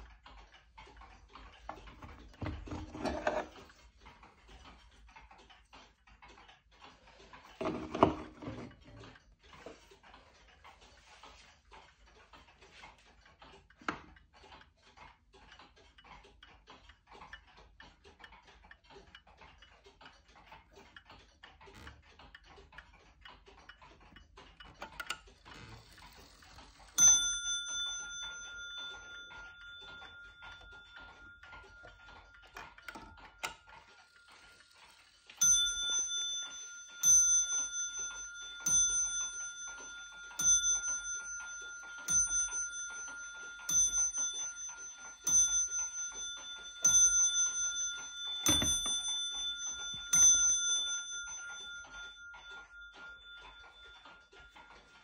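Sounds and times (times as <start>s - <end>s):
pendulum clock ticking: 0.0s - 55.0s
clock striking: 1.3s - 4.8s, 22.7s - 55.0s.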